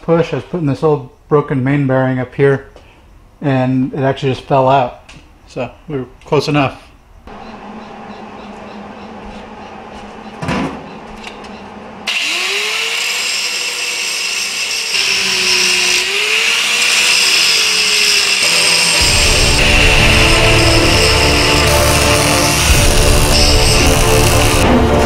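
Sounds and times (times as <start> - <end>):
angle grinder grinding steel: 12.1 - 24.7.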